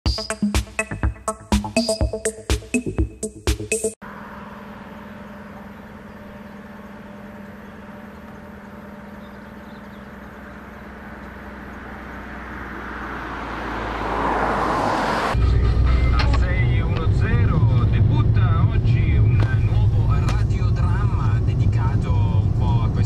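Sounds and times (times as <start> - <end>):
electronic music with a beat: 0.0 - 4.0
car engine hum: 4.0 - 23.0
road noise: 4.0 - 23.0.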